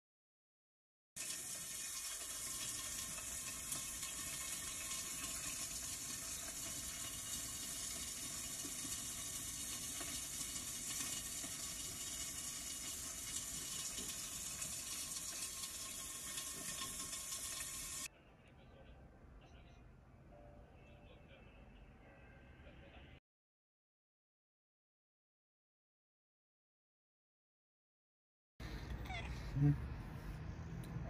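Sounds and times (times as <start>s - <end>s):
hiss of running water: 1.2s - 18.1s.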